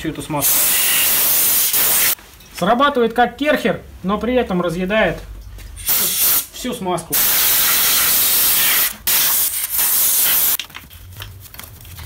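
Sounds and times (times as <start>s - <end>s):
compressed-air wash gun hissing: 0.4s - 2.2s, 5.8s - 6.5s, 7.2s - 10.6s.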